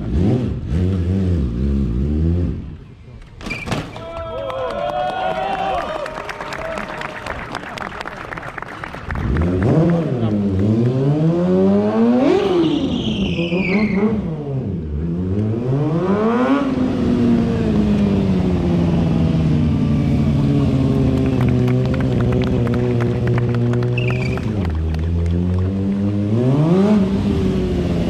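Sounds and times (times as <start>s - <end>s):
motorcycle engine revving: 0.0s - 2.8s, 9.2s - 28.0s.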